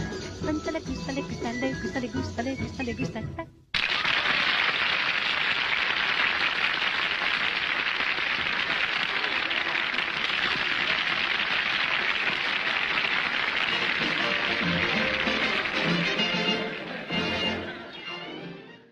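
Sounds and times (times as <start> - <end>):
audience applauding: 3.7 - 18.2.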